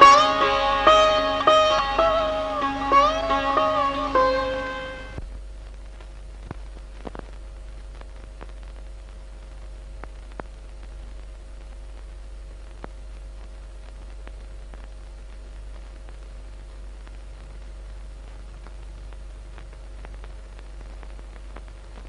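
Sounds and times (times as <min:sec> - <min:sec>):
low hum: 0:00.0 - 0:11.0
film soundtrack hiss: 0:00.0 - 0:22.0
faint clicks and crackles: 0:05.2 - 0:22.0.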